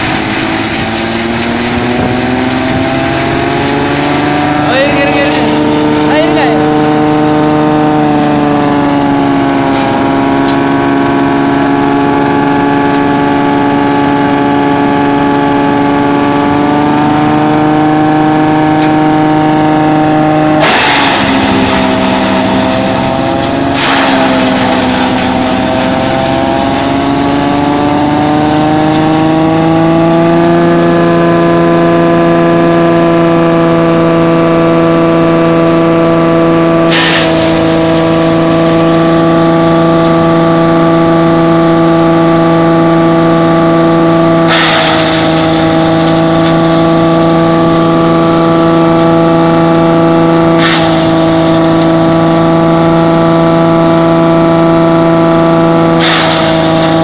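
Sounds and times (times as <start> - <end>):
coarse shredding of dry fronds: 0.0 - 10.7, 20.6 - 30.9, 36.9 - 40.3, 44.5 - 49.1, 50.6 - 53.4
shredder engine and rotor hum: 0.0 - 57.0.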